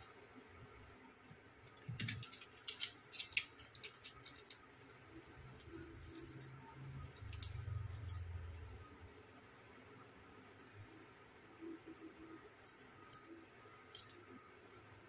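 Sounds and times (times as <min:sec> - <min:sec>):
low hum: 0:05.1 - 0:12.5.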